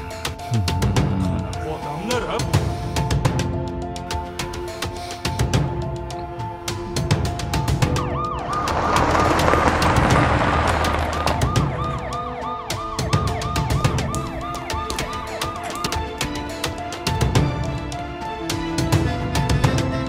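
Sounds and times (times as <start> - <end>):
dramatic film music: 0.0 - 20.0
ambulance siren yelping: 7.8 - 16.4
rush of noise: 8.4 - 11.6.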